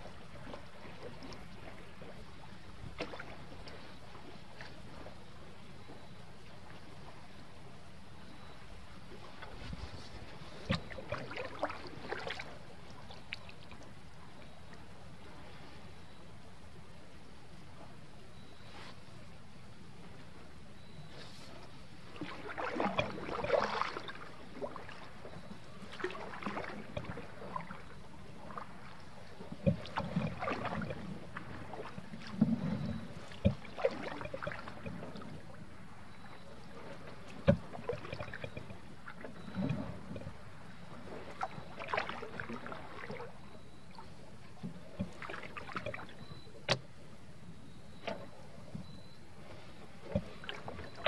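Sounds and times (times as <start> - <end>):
paddle splashing in water: 0.0 - 5.1, 9.1 - 13.9, 21.1 - 46.9, 48.0 - 51.0
paddle knocking against canoe: 29.5 - 35.2, 37.3 - 40.4.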